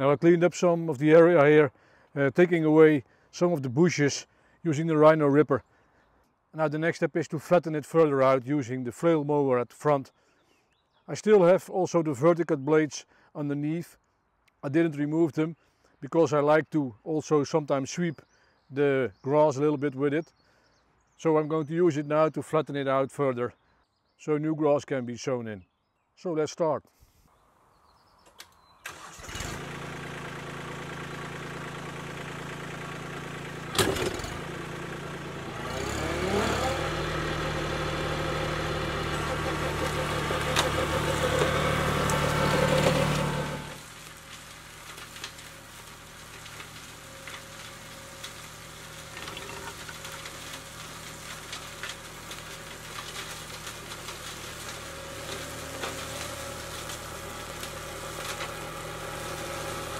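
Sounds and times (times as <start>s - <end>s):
flail mower: 28.8s - 59.9s
tractor diesel engine running: 28.8s - 59.9s.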